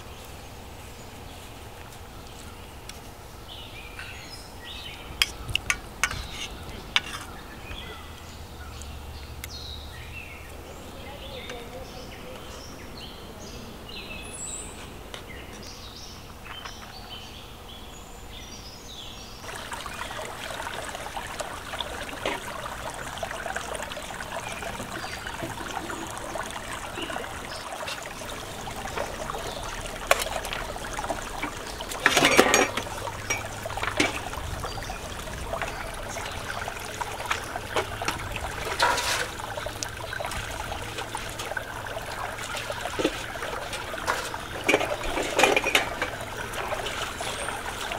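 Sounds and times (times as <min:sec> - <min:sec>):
birds chirping: 0:00.0 - 0:47.9
metal dishes clanking: 0:05.2 - 0:07.4, 0:32.0 - 0:34.2, 0:44.1 - 0:46.2
stream trickling over rocks: 0:19.4 - 0:47.9.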